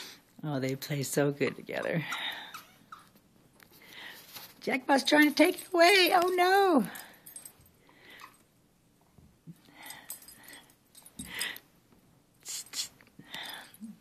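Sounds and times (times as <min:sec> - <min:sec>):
soft breathy dog noises: 0:02.0 - 0:04.6, 0:06.9 - 0:08.6, 0:09.5 - 0:11.8, 0:12.4 - 0:14.0.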